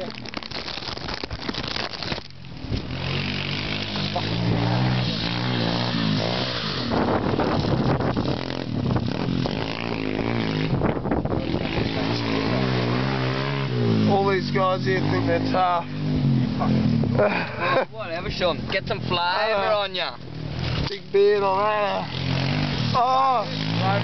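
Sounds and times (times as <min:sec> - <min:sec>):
mini bike engine revving: 0:02.1 - 0:17.8, 0:20.4 - 0:24.0.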